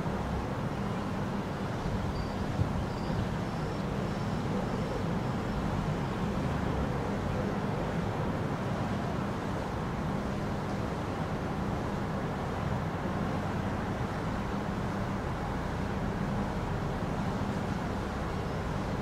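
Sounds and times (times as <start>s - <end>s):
road traffic rumble: 0.0s - 19.0s
faint high chirps: 2.1s - 5.0s.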